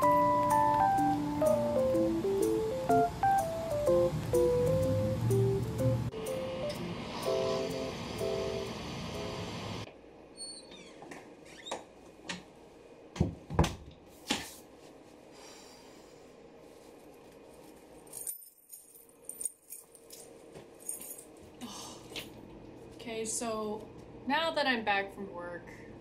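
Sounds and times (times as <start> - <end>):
door opening: 10.4 - 11.9
knocks and thumps: 13.2 - 13.9.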